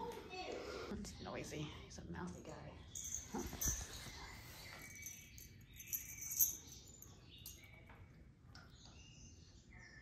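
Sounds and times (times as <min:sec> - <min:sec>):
small bell jingling: 0:02.9 - 0:08.0.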